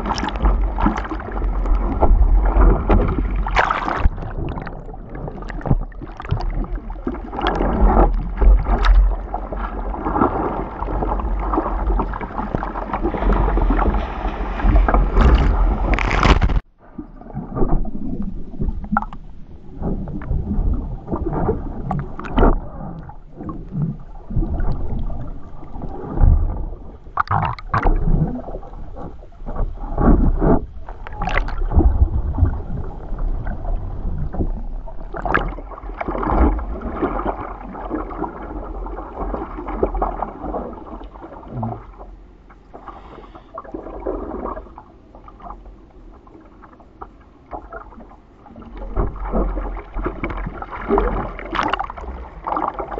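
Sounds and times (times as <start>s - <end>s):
seawater rushing and splashing: 0.0s - 16.7s, 47.6s - 52.9s
muffled underwater sound: 0.0s - 52.9s.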